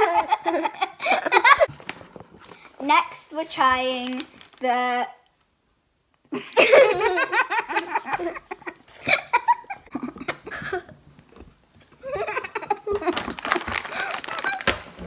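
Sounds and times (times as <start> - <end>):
girls laughing and giggling: 0.0 - 1.7, 6.3 - 11.0, 11.9 - 14.7.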